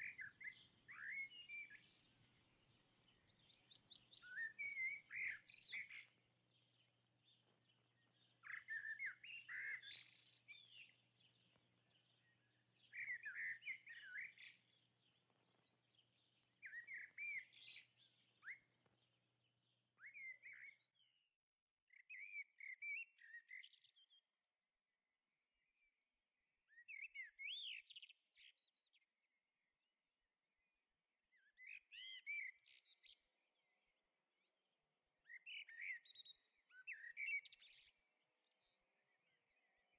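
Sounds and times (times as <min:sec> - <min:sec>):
songbird whistling: 0:00.0 - 0:02.5, 0:03.2 - 0:06.2, 0:08.4 - 0:10.9, 0:12.9 - 0:14.6, 0:16.6 - 0:17.8, 0:31.6 - 0:33.0, 0:35.3 - 0:38.2.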